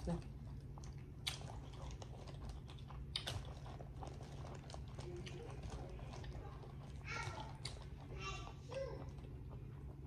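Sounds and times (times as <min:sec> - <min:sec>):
plastic bag crinkling: 0:01.5 - 0:08.2.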